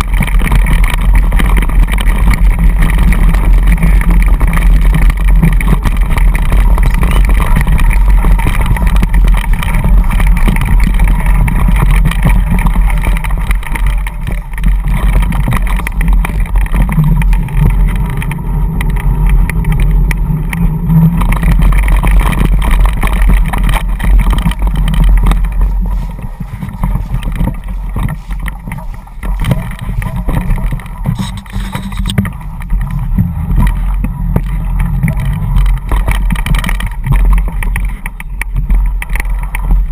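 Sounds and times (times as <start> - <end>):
small knocks and rattles: 0.0 - 39.9
tyres rolling on ground: 0.0 - 39.9
wind rumble on microphone: 0.0 - 39.9.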